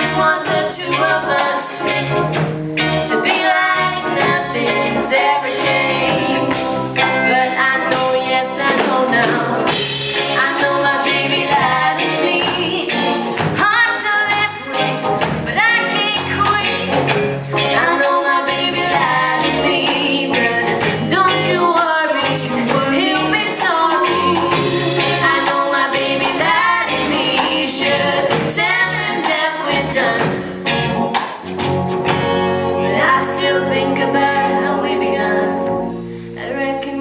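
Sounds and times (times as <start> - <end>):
woman singing: 0.0 - 2.2, 3.0 - 30.5, 32.8 - 37.0
bass guitar: 0.0 - 37.0
electric guitar: 0.0 - 37.0
drums with cymbal hits: 5.6 - 14.0, 22.2 - 32.3
organ-like synthesizer: 22.5 - 36.1.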